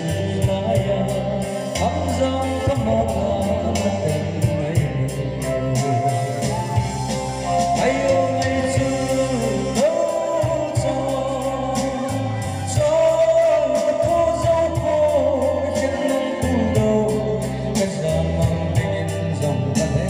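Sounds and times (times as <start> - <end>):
backing music with steady beat: 0.0 - 20.0
man singing over a pa: 0.0 - 20.0.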